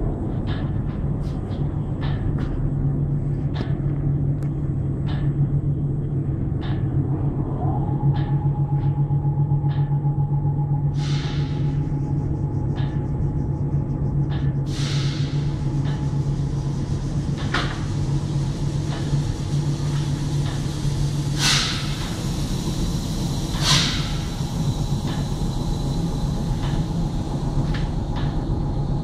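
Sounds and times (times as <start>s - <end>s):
low machine drone: 0.0s - 29.0s
short hissing knocks: 21.3s - 22.5s, 23.5s - 24.5s.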